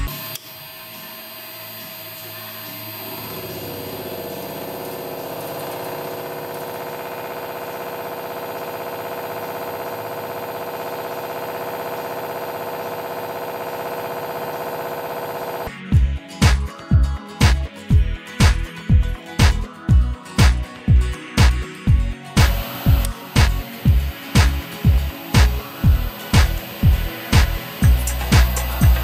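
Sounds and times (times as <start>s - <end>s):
milling machine cutting metal: 0.0s - 15.7s, 22.3s - 29.0s.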